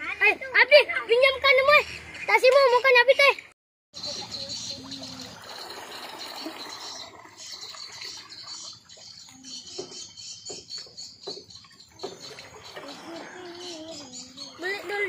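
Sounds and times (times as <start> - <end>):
seawater lapping at wooden edge: 4.0 - 15.0.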